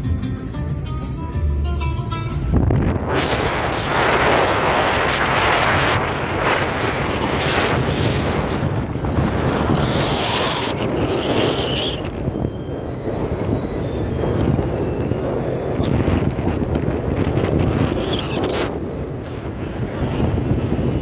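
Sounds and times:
road noise: 0.0s - 21.0s
wind gusting over microphone: 2.1s - 21.0s.

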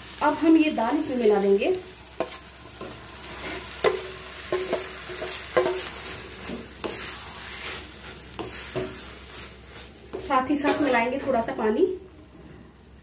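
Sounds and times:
food sizzling in a wok: 0.0s - 13.0s
spatula scraping a wok: 2.1s - 11.5s
utensils knocking on a wok: 2.2s - 3.0s, 3.8s - 7.0s, 8.4s - 9.0s.

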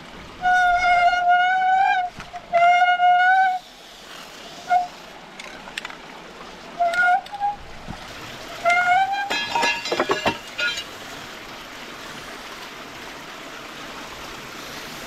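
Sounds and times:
axle squealing in wooden bearing: 8.6s - 10.8s.

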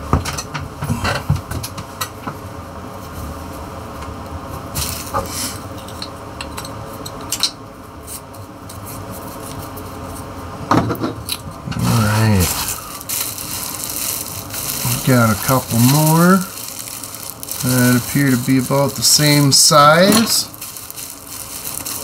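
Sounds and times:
packaging rustling: 11.8s - 22.0s.

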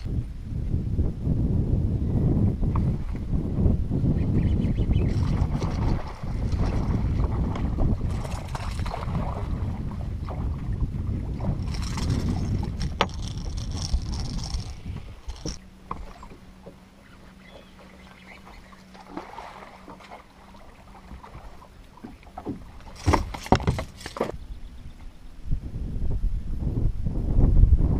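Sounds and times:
wind rumbling on microphone: 0.0s - 19.7s, 20.6s - 27.9s
low steady hum: 0.0s - 27.9s.

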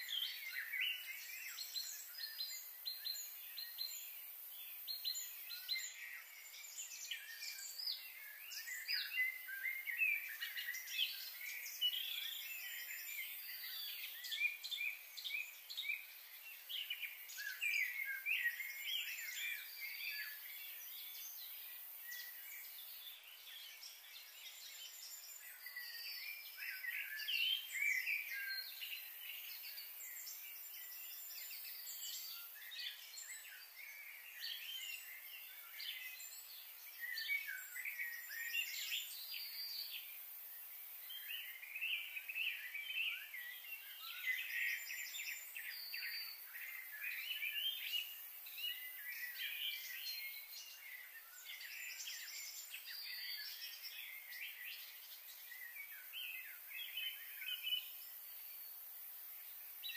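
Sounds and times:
small birds chirping and trilling: 0.0s - 59.9s.

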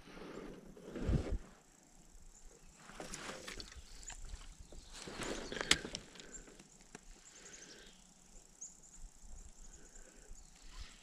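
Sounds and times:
faint ticks: 4.0s - 7.2s.

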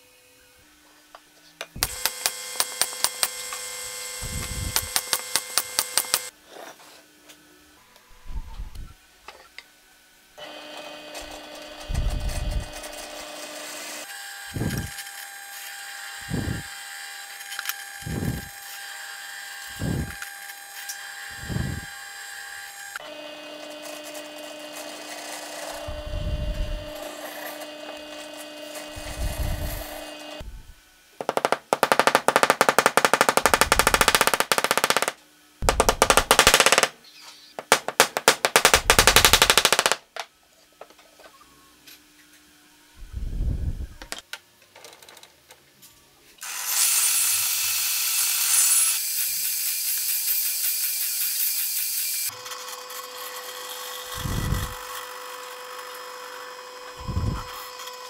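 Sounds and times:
drill press boring into wood: 10.4s - 30.4s.

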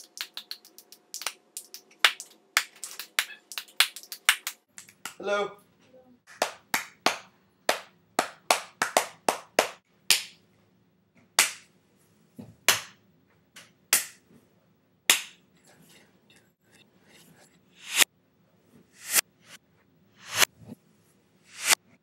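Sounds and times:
hand claps: 0.0s - 5.2s, 6.3s - 10.4s, 11.4s - 11.7s, 12.7s - 13.0s, 13.6s - 14.2s, 15.1s - 15.4s.

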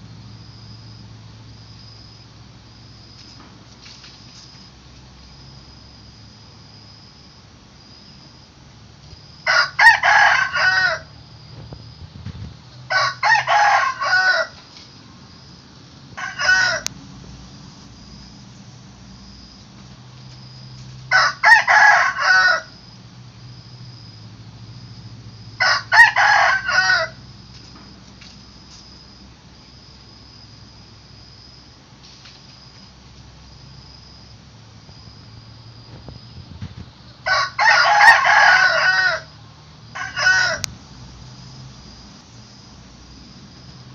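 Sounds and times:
rooster crowing: 9.4s - 11.3s, 12.8s - 14.6s, 16.1s - 17.0s, 21.0s - 23.0s, 25.5s - 27.4s, 37.2s - 40.8s.

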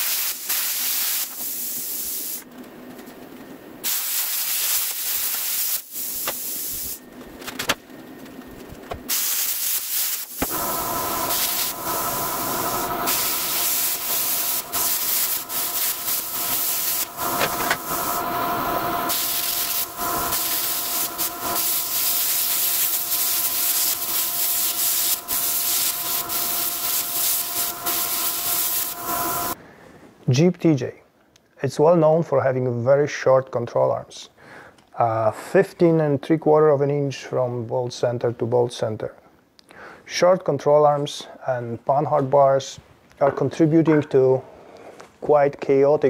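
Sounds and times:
plasma cutter hissing: 0.0s - 2.4s, 3.8s - 7.0s, 9.1s - 29.6s.

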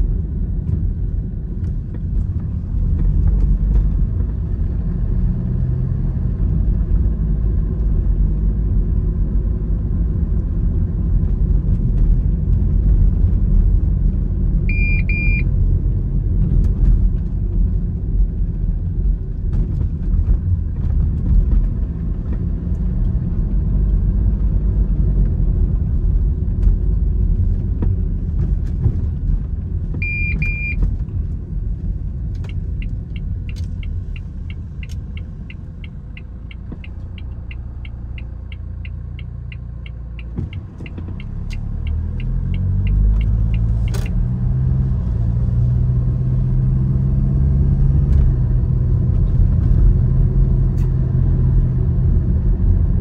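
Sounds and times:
vehicle rumble from inside: 0.0s - 53.0s
short electronic beep: 14.7s - 15.5s, 30.0s - 30.8s
turn indicator ticking: 29.9s - 44.6s.

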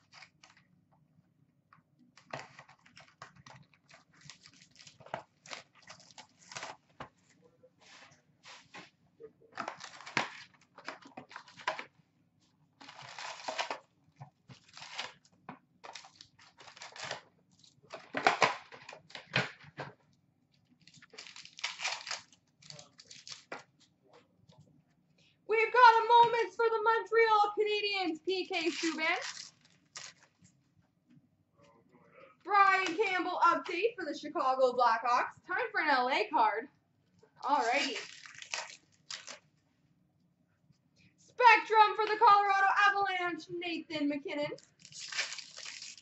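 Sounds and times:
wrapper tearing and crinkling: 2.2s - 7.0s, 9.6s - 11.8s, 12.8s - 13.9s, 14.5s - 19.4s, 20.8s - 23.7s, 28.6s - 30.4s, 37.4s - 39.5s, 44.6s - 46.0s.

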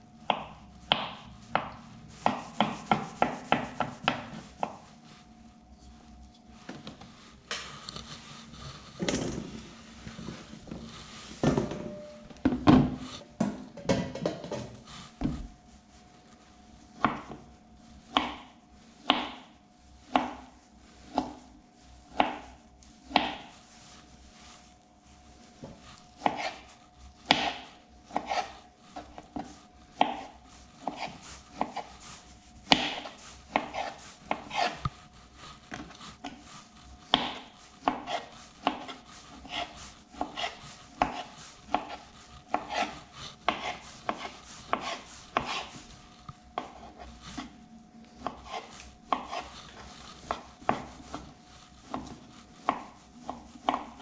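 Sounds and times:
knife slicing sausage: 0.3s - 4.9s, 18.1s - 21.5s, 22.1s - 23.6s, 25.4s - 54.0s.

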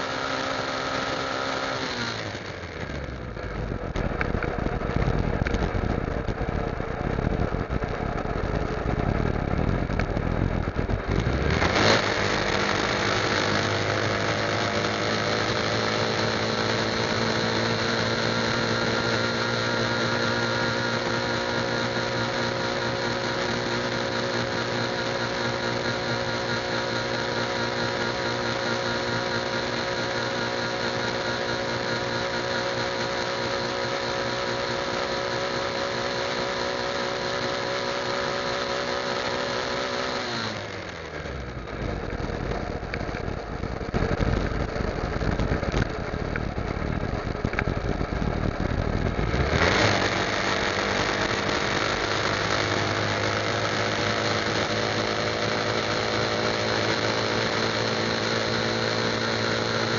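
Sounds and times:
motorcycle engine running: 0.0s - 59.9s
wind noise on microphone: 3.6s - 12.3s, 41.8s - 49.8s.

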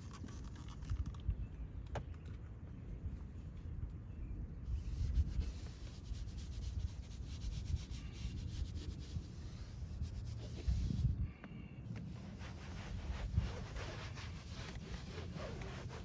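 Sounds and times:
brush scrubbing plastic dashboard: 4.7s - 11.1s, 12.0s - 16.0s.

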